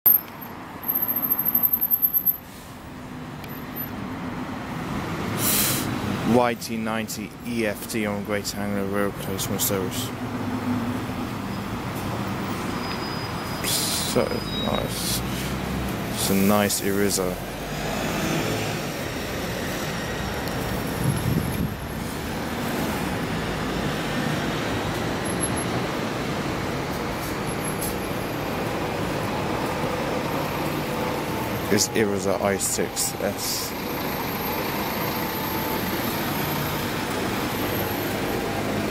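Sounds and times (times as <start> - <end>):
street traffic: 0.0 - 38.9
short hiss: 5.4 - 5.9
diesel coach engine approaching: 7.6 - 38.9
car passing: 9.4 - 38.9.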